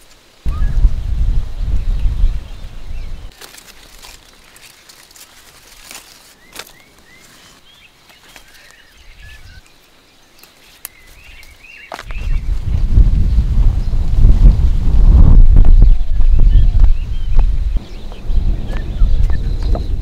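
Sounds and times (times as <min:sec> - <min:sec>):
small birds chirping: 0:01.5 - 0:12.7, 0:15.8 - 0:20.0
beans snapping off vines: 0:03.3 - 0:07.0.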